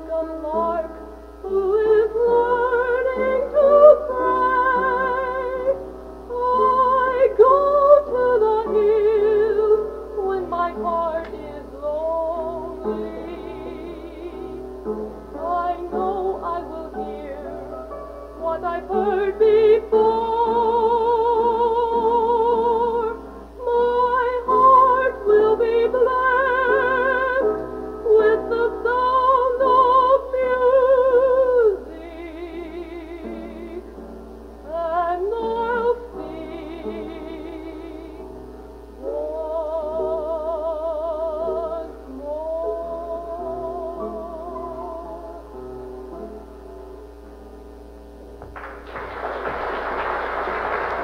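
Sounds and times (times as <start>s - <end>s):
woman singing with vibrato: 0.0s - 14.6s, 15.4s - 17.7s, 18.4s - 33.9s, 34.7s - 38.3s, 39.0s - 45.5s
low tape hum: 0.0s - 51.0s.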